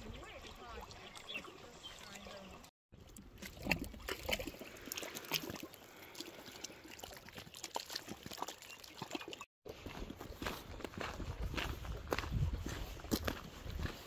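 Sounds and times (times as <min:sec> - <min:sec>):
water trickling in stream: 0:00.0 - 0:10.2
footsteps on gravel: 0:09.7 - 0:14.0.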